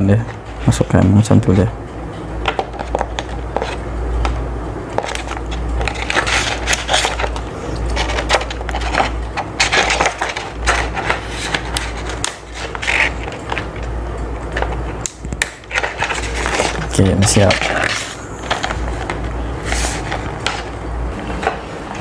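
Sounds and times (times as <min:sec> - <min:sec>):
steady low hum: 0:00.0 - 0:22.0
plastic sheet crinkling: 0:05.0 - 0:13.8, 0:14.6 - 0:20.7.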